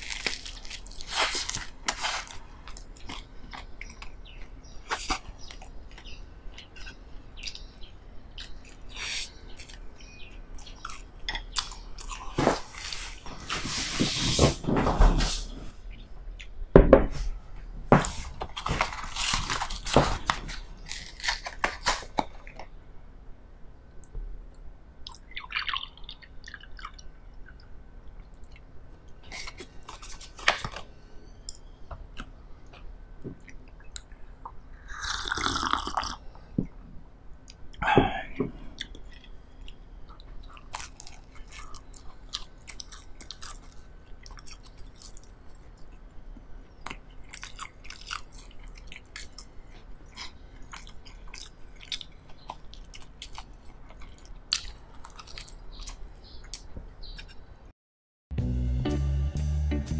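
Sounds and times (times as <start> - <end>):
chewing bread: 0.0 - 13.2, 18.3 - 22.7, 25.0 - 30.9, 38.6 - 57.4.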